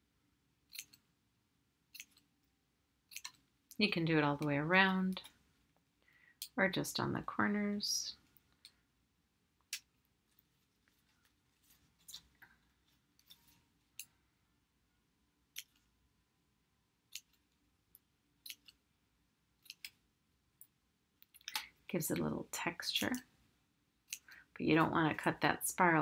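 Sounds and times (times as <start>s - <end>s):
scissors snipping paper: 3.1s - 3.4s.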